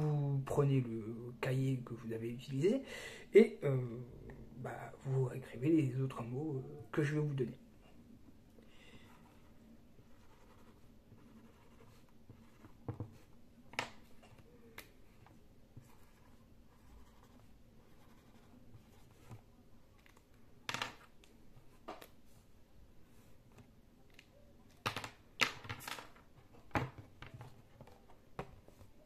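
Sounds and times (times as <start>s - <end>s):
felt-tip pen scratching on paper: 9.1s - 13.2s, 15.8s - 19.4s.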